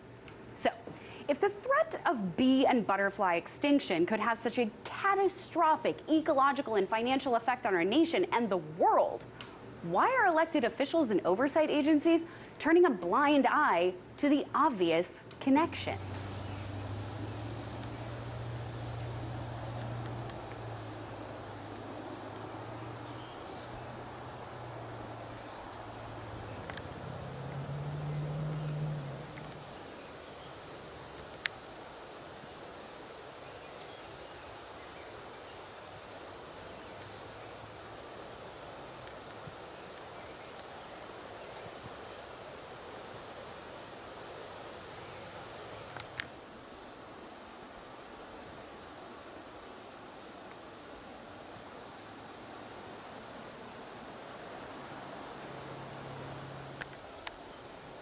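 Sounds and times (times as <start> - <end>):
low steady hum: 0.0 - 30.5.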